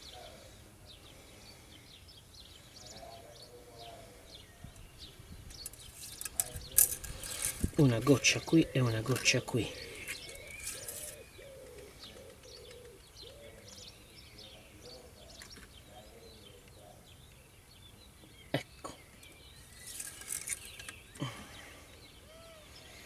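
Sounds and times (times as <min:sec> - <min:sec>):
birds chirping: 0:00.0 - 0:23.0
scraping rustle: 0:05.5 - 0:11.3, 0:19.5 - 0:21.2.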